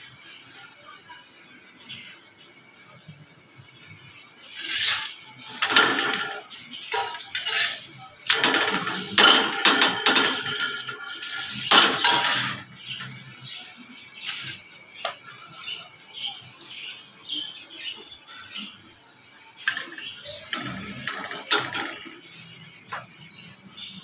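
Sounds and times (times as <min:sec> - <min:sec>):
utensils and plates clattering: 0:04.6 - 0:18.9, 0:19.6 - 0:23.2.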